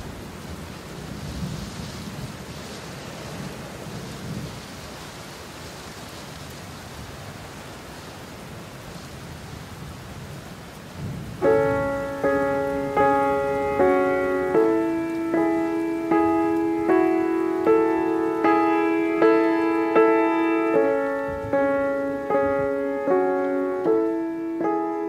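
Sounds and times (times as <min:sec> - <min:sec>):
thunder rumbling: 0:00.0 - 0:05.3, 0:10.9 - 0:25.0
steady rain: 0:00.0 - 0:25.0.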